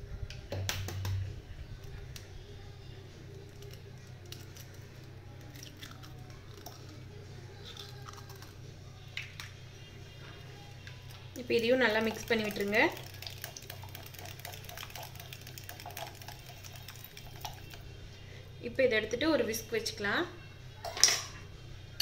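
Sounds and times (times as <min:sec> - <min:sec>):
steady low hum: 0:00.0 - 0:22.0
egg shell tapping and clicking: 0:00.5 - 0:01.2, 0:12.4 - 0:17.8.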